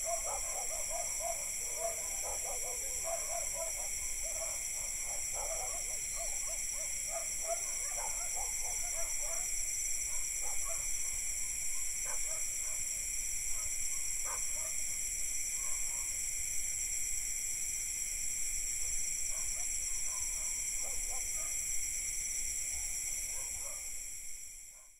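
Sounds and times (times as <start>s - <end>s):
distant dogs barking: 0.0s - 9.5s, 10.1s - 12.9s, 19.3s - 21.6s, 22.8s - 23.9s
crickets and cicadas trilling: 0.0s - 24.9s.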